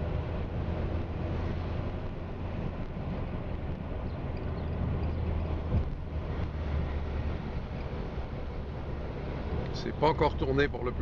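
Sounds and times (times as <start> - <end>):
road noise: 0.0 - 11.0
vehicle engine rumble: 0.0 - 11.0.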